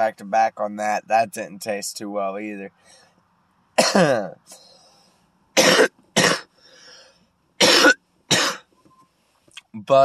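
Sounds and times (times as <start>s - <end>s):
man coughing: 3.8s - 4.4s, 5.6s - 6.5s, 7.6s - 8.6s.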